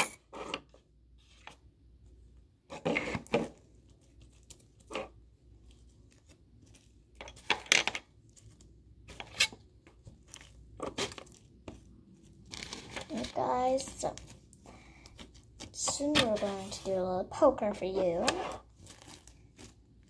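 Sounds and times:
slime squishing and tearing: 8.1 - 16.6, 18.0 - 20.0.

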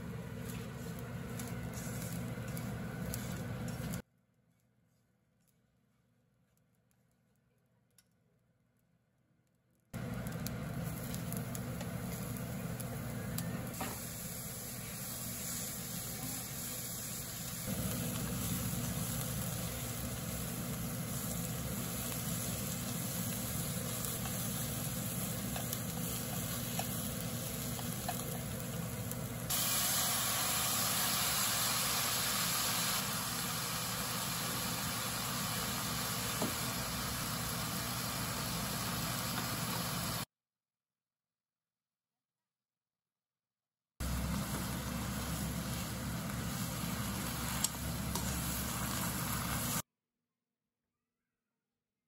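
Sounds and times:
food sizzling in a frying pan: 10.0 - 40.3, 44.0 - 49.8.

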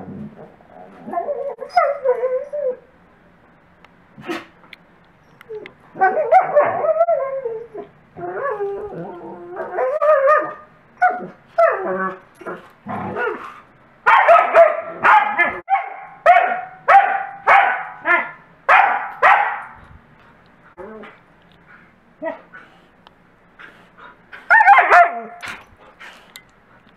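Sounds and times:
dogs whining and howling: 0.7 - 3.0, 5.2 - 13.4, 24.5 - 25.6
dog barking: 14.1 - 19.8, 24.5 - 25.4.

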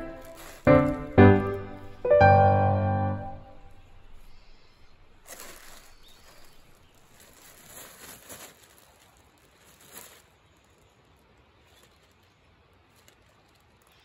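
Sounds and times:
plastic bag crinkling: 0.0 - 2.1, 3.6 - 14.0
foliage rustling: 0.0 - 2.5, 3.1 - 14.0.

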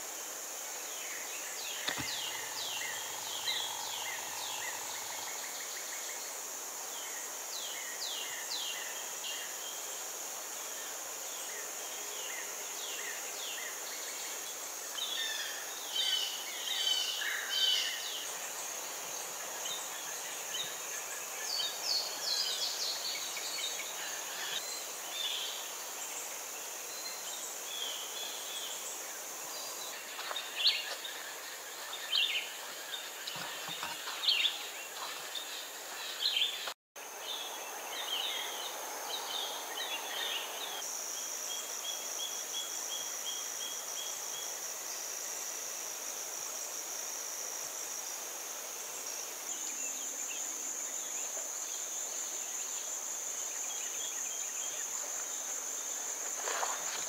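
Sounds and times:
insects chorus: 0.0 - 57.0
birds chirping: 1.5 - 6.0, 29.6 - 40.8.

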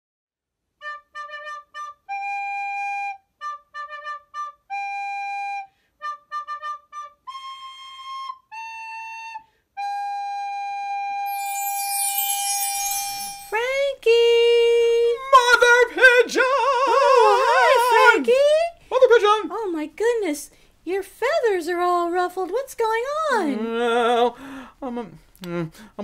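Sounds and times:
flute-like solo melody: 0.8 - 13.7
bright chime shimmer: 11.3 - 13.9.

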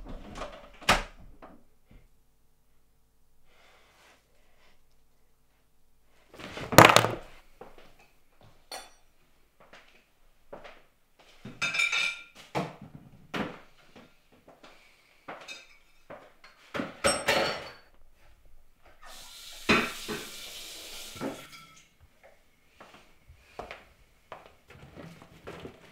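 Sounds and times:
dishes and cutlery clinking: 8.7 - 9.1, 11.5 - 12.4, 15.4 - 17.9, 21.2 - 21.9.

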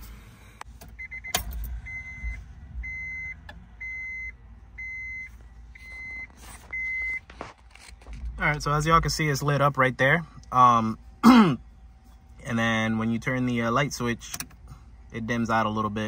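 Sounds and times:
dashboard warning chime beeping: 0.4 - 7.3
ignition click: 14.2 - 14.6.

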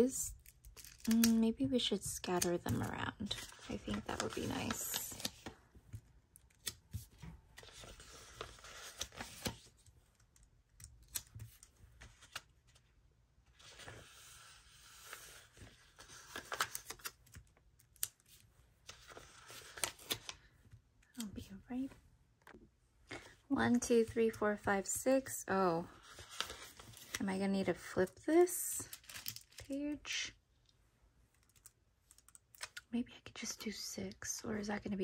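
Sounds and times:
paper rustling: 2.3 - 5.6, 6.6 - 9.9, 13.6 - 17.4, 26.0 - 27.2.

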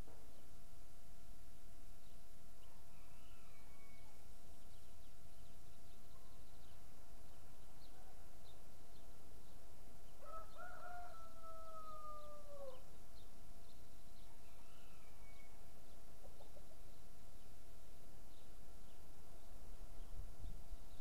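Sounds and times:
small birds chirping: 1.9 - 21.0
rooster crowing: 2.7 - 4.2, 10.2 - 12.8.

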